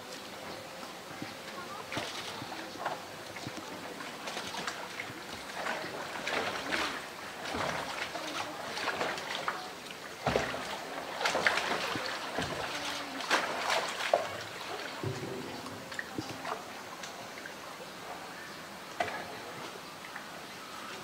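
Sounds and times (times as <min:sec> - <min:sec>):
water sloshing: 0:00.9 - 0:20.5
plastic drum knocking and scraping: 0:15.0 - 0:15.8.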